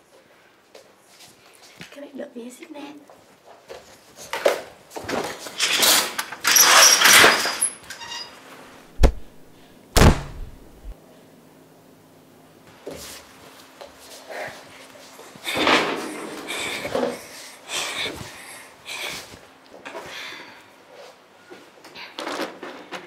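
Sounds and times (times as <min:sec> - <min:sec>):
clattering and rustling: 0:03.8 - 0:08.3
heavy deep thuds: 0:08.9 - 0:11.0.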